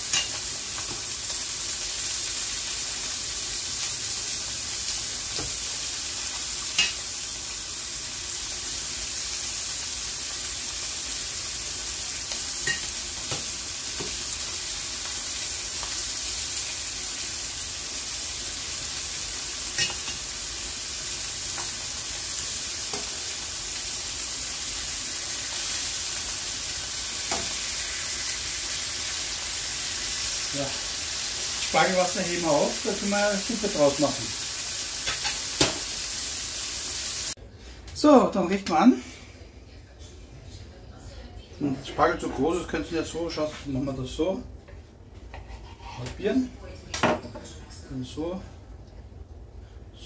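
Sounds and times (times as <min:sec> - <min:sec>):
meat sizzling in a pan: 0:00.0 - 0:37.4.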